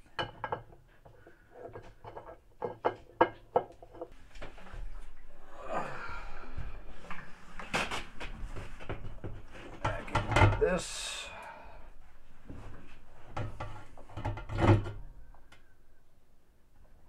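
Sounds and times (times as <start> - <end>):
light knocks and clatter: 0.1 - 5.1, 7.1 - 10.6.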